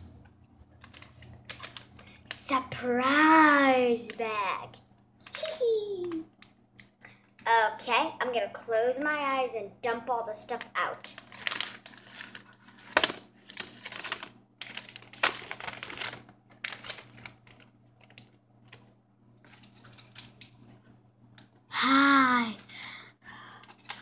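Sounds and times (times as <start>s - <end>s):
bag crinkling and rattling: 0.7s - 2.2s, 11.0s - 20.8s
child exclaiming: 2.4s - 6.3s, 21.7s - 22.7s.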